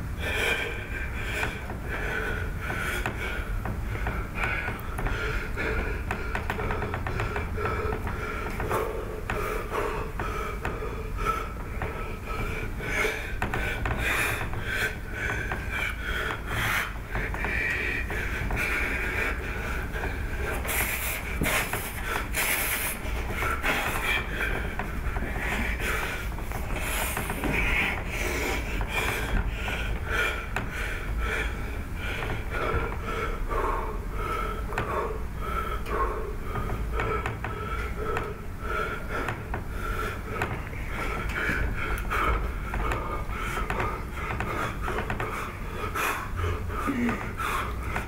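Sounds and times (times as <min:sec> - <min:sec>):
low room rumble: 0:00.0 - 0:48.0
man snorting and gasping: 0:46.2 - 0:48.0.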